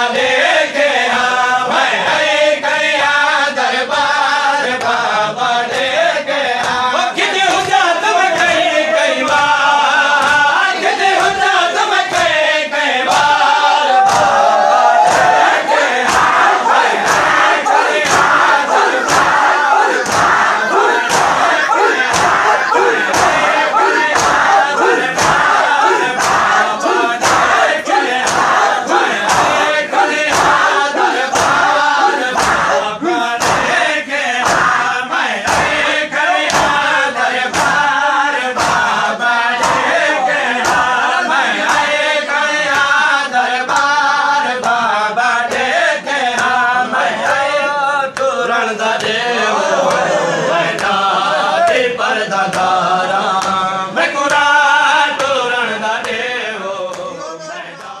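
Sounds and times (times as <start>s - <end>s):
men chanting in unison: 0.0s - 58.0s
hands slapping chests: 6.6s - 12.4s, 13.1s - 33.8s, 34.4s - 38.0s, 38.6s - 42.0s, 42.6s - 43.0s, 43.6s - 44.0s, 46.4s - 46.6s, 50.7s - 51.0s, 52.5s - 53.7s.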